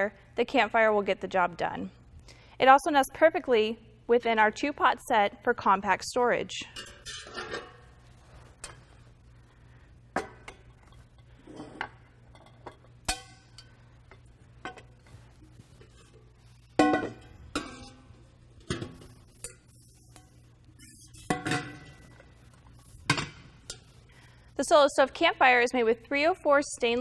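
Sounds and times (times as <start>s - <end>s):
metal pots and lids clinking: 6.5s - 7.9s, 10.2s - 14.9s, 15.8s - 22.3s.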